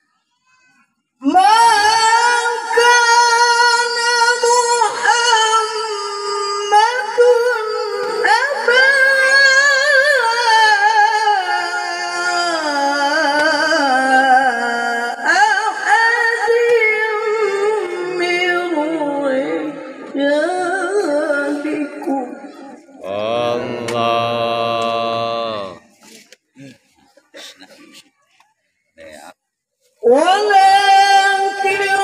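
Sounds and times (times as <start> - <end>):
man reciting in melismatic voice: 21.8 - 26.1.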